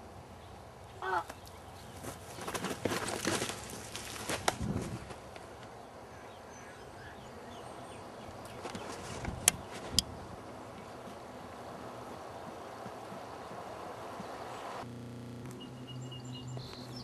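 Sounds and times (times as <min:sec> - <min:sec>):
crunch and scuffle: 0:01.3 - 0:05.3, 0:08.5 - 0:10.0.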